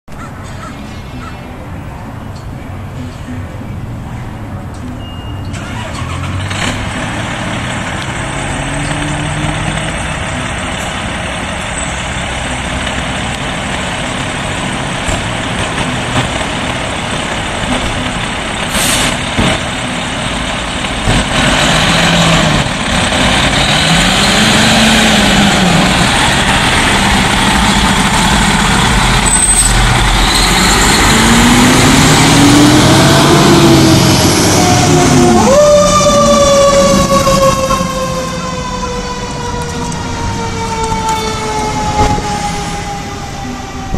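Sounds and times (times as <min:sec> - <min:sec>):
diesel engine running: 0:02.9 - 0:43.9
low rising and falling tone: 0:19.2 - 0:43.9.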